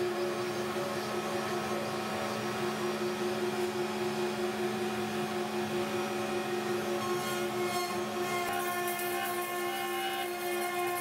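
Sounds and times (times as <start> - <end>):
router spindle motors whining: 0.0 - 11.0
cutters chipping wood: 6.9 - 11.0.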